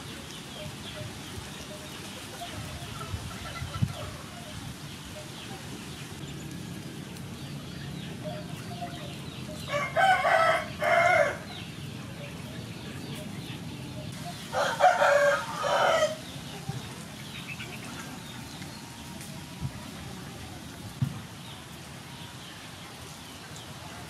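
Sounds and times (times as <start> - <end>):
rooster crowing: 9.6 - 11.5, 14.5 - 16.2.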